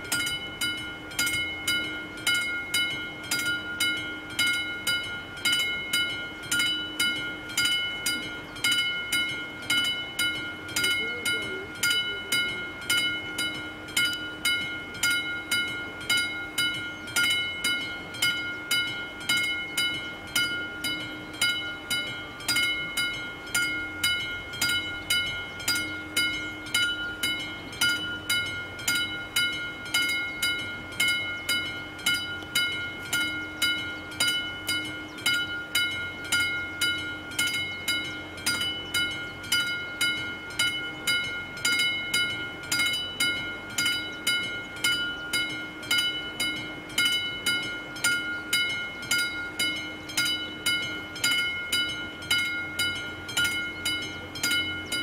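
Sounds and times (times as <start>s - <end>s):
level crossing bell ringing: 0.0s - 55.0s.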